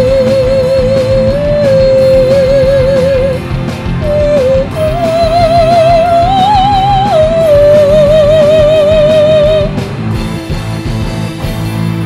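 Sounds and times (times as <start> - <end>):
woman singing operatically: 0.0 - 3.4, 4.0 - 9.7
rock band playing: 0.0 - 12.0.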